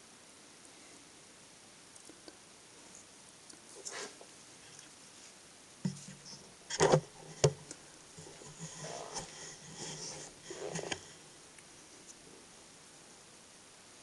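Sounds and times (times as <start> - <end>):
scraping and rustling: 2.9 - 12.4
microphone handling knocks and clicks: 5.8 - 11.1.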